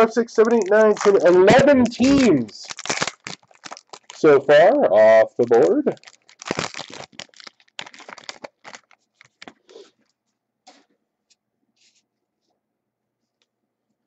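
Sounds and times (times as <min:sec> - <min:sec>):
foil wrapper crinkling and tearing: 0:00.0 - 0:10.1.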